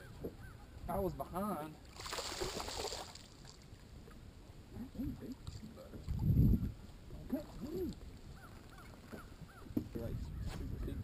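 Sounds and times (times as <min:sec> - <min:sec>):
water lapping against boat hull: 0:01.7 - 0:10.1.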